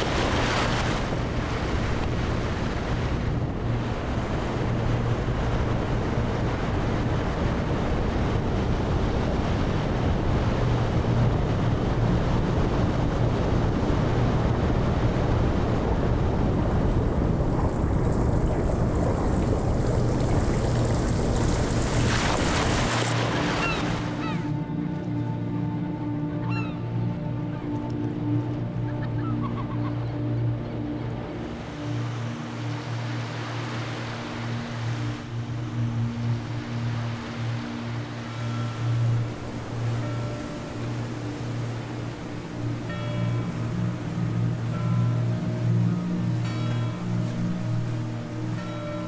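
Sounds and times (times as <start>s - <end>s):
sea surf breaking on shore: 0.0s - 24.6s
wind rumbling on microphone: 0.0s - 24.7s.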